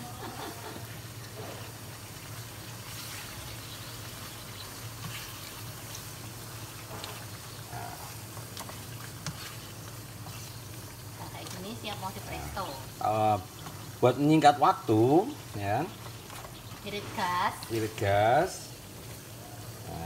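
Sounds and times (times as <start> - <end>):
meat simmering and bubbling in a wok: 0.0 - 20.0
plastic spatula stirring and scraping: 7.9 - 11.6.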